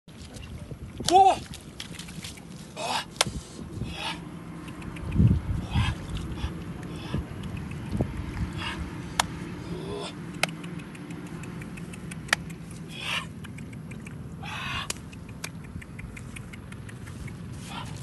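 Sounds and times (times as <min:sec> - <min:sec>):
fish splashing in a puddle: 0:00.2 - 0:03.1
steady low hum: 0:00.2 - 0:18.0
sharp clicks: 0:04.6 - 0:05.3, 0:07.4 - 0:08.5, 0:10.2 - 0:17.5.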